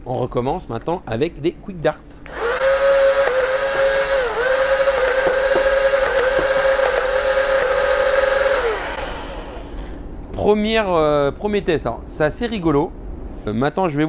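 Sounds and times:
electric motor whining: 2.3 - 9.9.

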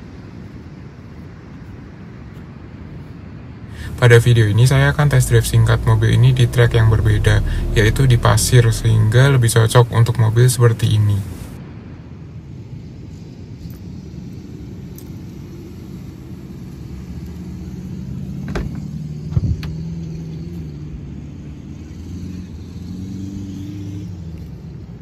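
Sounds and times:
car engine idling: 3.8 - 11.6
car door shutting: 18.4 - 19.7.

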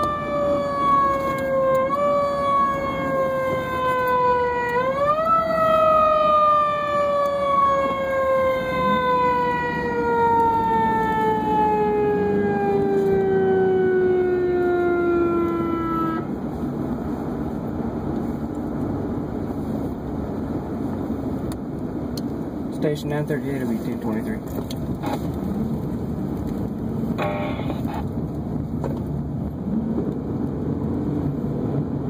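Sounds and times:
siren wailing: 0.0 - 16.4, 27.2 - 28.1
vehicle engine and road noise: 0.0 - 32.0.

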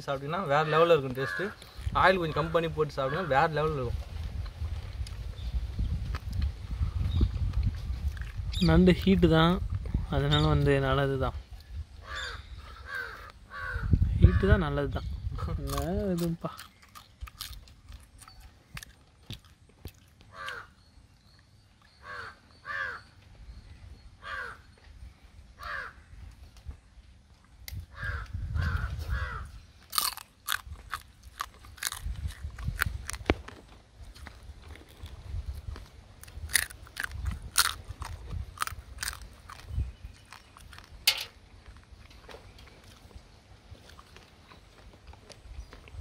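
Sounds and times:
crow cawing: 1.2 - 1.7, 2.3 - 3.5, 12.0 - 14.5, 20.3 - 20.8, 22.0 - 23.1, 24.2 - 24.7, 25.6 - 26.0, 27.9 - 29.5
crab shell crunching while chewing: 15.6 - 20.6, 29.8 - 43.1.

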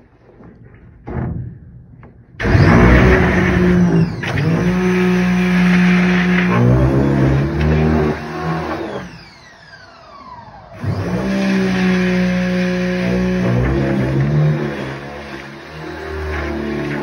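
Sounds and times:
pressure washer spraying: 2.4 - 9.4, 10.8 - 17.0
motor winding down whine: 2.4 - 17.0.

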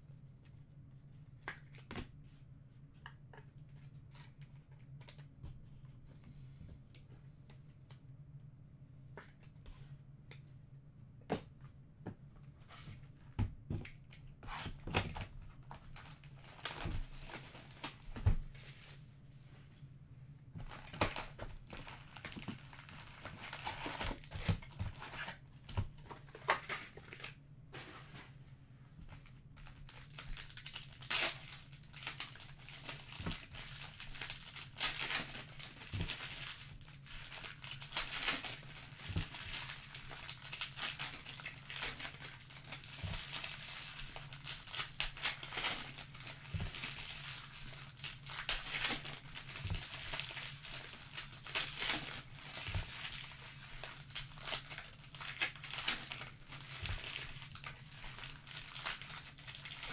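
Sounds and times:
faint low hum: 0.0 - 59.9
foil wrappers crinkling and tearing: 13.9 - 19.0, 20.6 - 27.4, 29.1 - 59.9.

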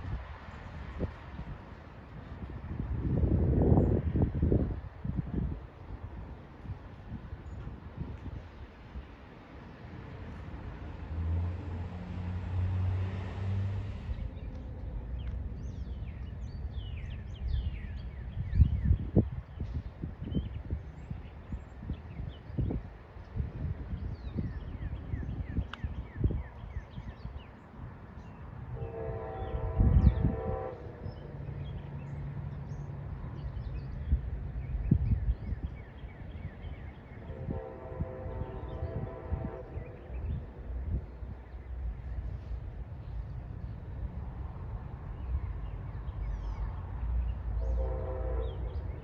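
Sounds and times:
songbirds chirping: 6.4 - 49.0
train horn chord: 28.7 - 31.3, 37.3 - 40.1, 47.6 - 49.0.

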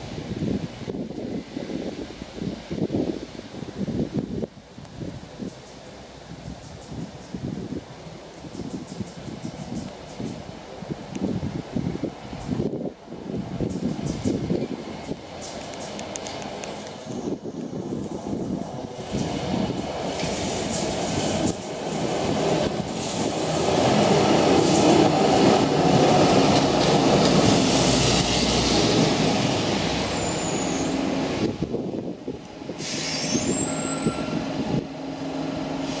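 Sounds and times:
tram wheels rumbling on rails: 0.0 - 36.0
high wheel squeals: 17.0 - 17.8, 30.1 - 31.1, 32.8 - 34.8.

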